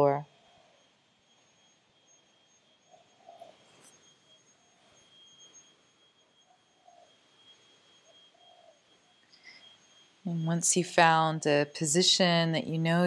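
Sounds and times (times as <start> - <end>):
faint high-pitched tone: 0.0 - 13.0.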